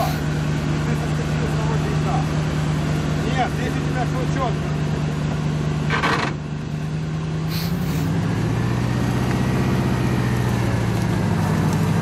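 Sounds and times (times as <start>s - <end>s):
off-road vehicle engine running: 0.0s - 12.0s
brief hiss: 7.5s - 8.1s.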